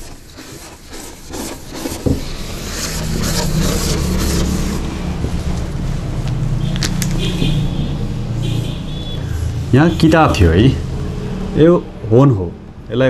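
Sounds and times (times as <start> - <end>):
whiteboard being wiped: 0.0 - 5.6.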